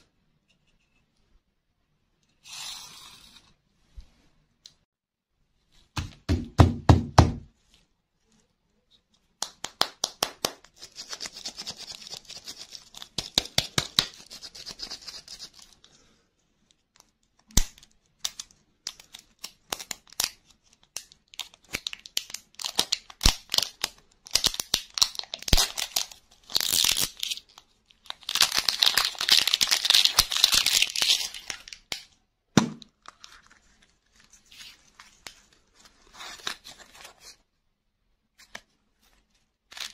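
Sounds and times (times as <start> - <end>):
foil wrapper tearing and crinkling: 20.9 - 32.0.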